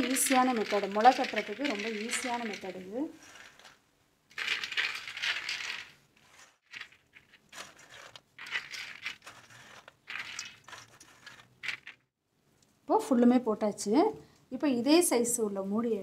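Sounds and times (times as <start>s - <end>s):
beans rustling: 0.0s - 12.1s.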